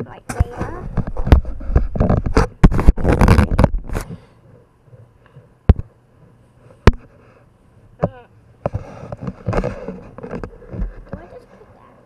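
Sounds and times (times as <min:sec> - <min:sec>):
handling rustling and scraping: 0:00.3 - 0:07.4, 0:08.6 - 0:12.0.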